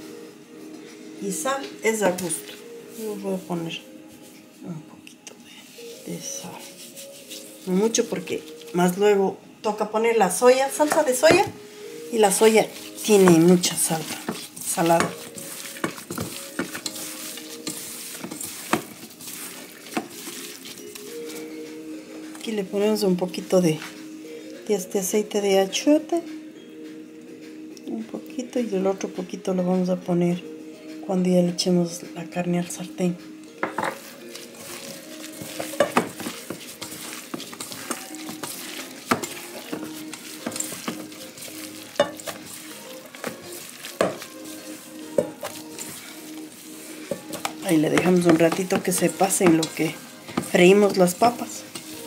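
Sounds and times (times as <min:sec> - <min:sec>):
wet squelching of kneaded meat: 0:12.2 - 0:21.5, 0:34.0 - 0:52.0.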